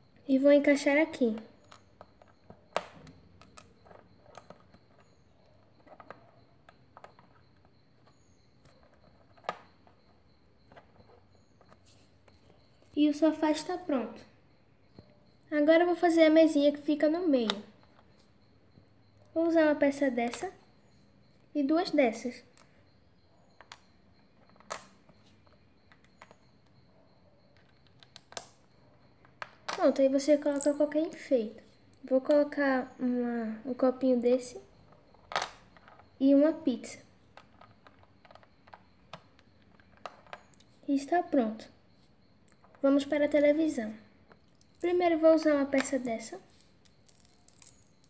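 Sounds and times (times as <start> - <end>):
plastic bricks clicking: 1.3 - 10.0, 24.4 - 26.4, 27.6 - 28.6, 35.1 - 36.0, 37.3 - 40.7.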